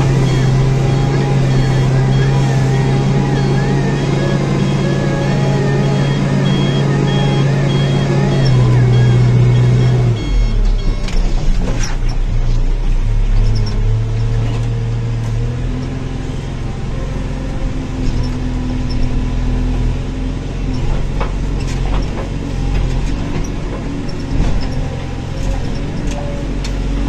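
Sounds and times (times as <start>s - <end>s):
diesel engine running under load: 0.0s - 27.0s
machine clunks and rattles: 20.8s - 26.8s.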